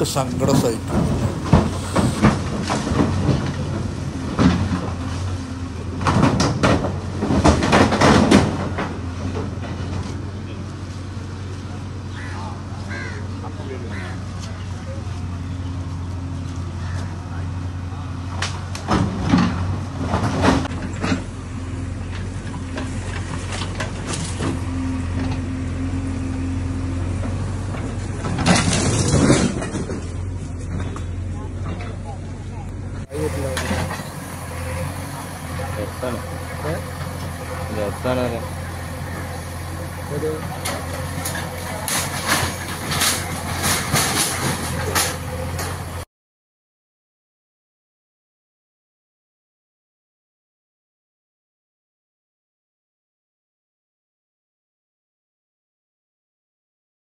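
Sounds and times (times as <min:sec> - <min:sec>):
sharp knocks and clatter: 0:00.0 - 0:05.2, 0:06.0 - 0:10.0, 0:33.2 - 0:46.0
diesel engine running: 0:00.0 - 0:46.1
wood cracking and crashing: 0:28.3 - 0:30.2.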